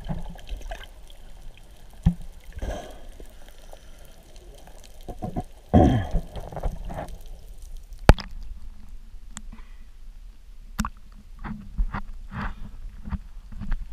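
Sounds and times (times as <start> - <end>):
water sloshing and gurgling: 0.0 - 9.4.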